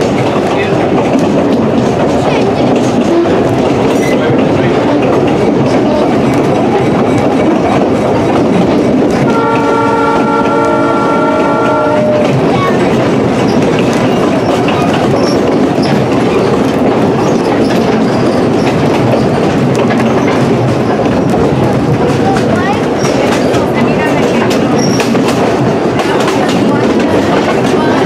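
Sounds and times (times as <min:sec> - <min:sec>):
train rumble with wheels clicking: 0:00.0 - 0:28.0
locomotive horn: 0:09.2 - 0:12.4.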